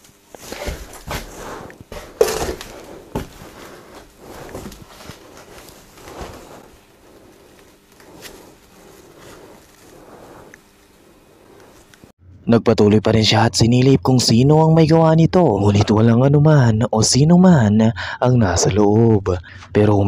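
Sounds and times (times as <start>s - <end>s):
rustling: 0.0s - 12.1s
shuffling footsteps: 0.0s - 12.1s.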